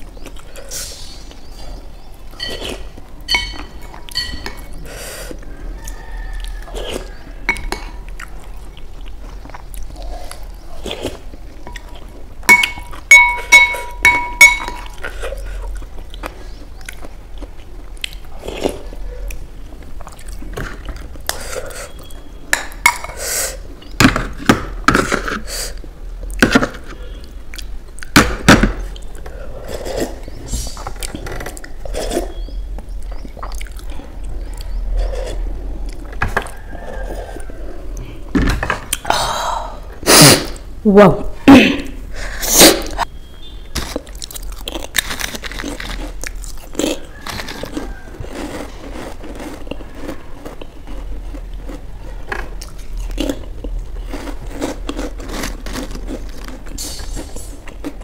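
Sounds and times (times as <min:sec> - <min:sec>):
spoon clinking against glass bowl: 0:03.3 - 0:04.6, 0:12.5 - 0:15.0.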